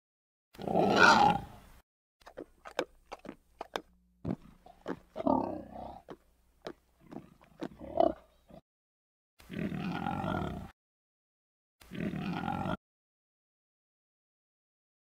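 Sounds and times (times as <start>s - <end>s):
warthogs grunting: 0.6s - 1.6s, 2.3s - 6.2s, 7.0s - 8.6s, 9.4s - 10.7s, 11.8s - 12.8s
pig clicks and grunts: 2.2s - 8.6s.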